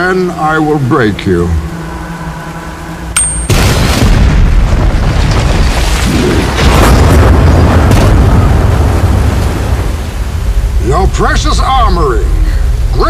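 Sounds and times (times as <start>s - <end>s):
explosions: 3.5s - 11.5s
rumble of collapsing concrete: 3.5s - 13.0s.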